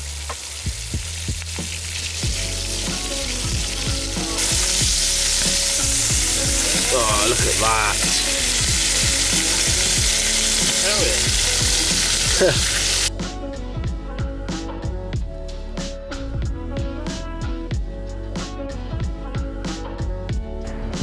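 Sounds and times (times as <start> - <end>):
lobster sizzling in butter: 0.0 - 13.1.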